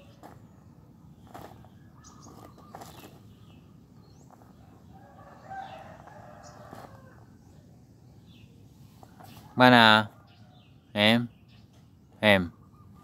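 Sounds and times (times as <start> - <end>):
rooster crowing faintly: 4.8 - 7.4.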